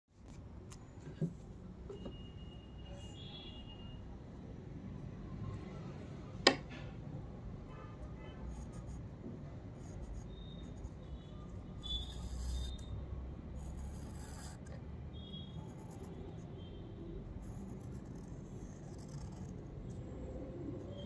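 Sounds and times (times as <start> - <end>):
pencil scratching on paper: 8.3 - 12.9, 13.5 - 14.8, 15.6 - 16.6, 17.2 - 21.0.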